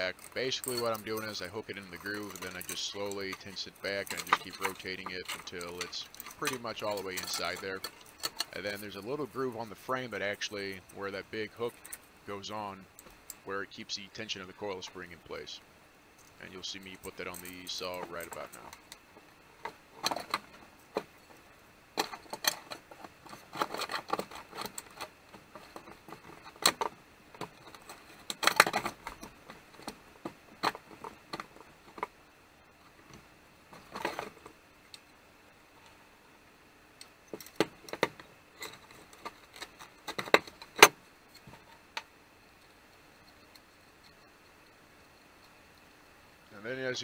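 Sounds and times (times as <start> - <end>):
metal parts clicking and rattling: 0.0 - 13.5, 16.2 - 19.0, 19.6 - 21.4, 22.0 - 32.1, 33.7 - 35.0, 37.3 - 42.0.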